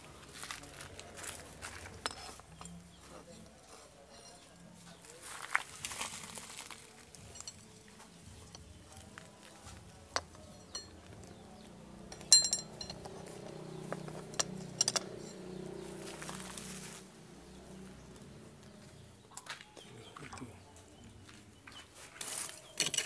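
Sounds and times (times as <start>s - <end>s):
metal knives clinking on stone: 1.8s - 4.8s, 7.1s - 7.8s, 10.2s - 11.1s, 12.1s - 13.2s, 14.2s - 15.5s.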